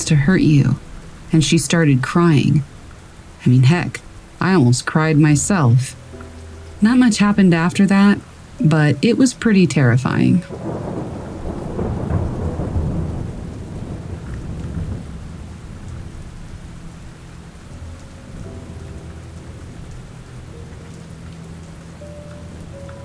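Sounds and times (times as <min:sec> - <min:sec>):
thunder rumbling: 0:00.0 - 0:06.1, 0:06.8 - 0:23.0
steady rain falling: 0:00.0 - 0:23.0.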